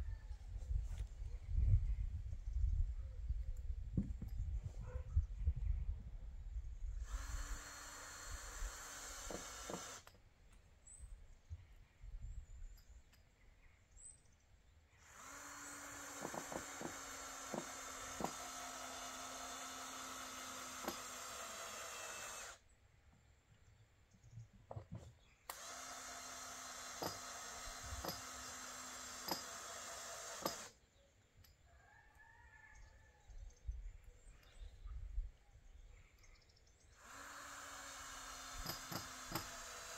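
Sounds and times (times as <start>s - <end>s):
power drill running: 7.0s - 10.1s, 15.0s - 22.6s, 25.5s - 30.8s, 37.0s - 39.9s.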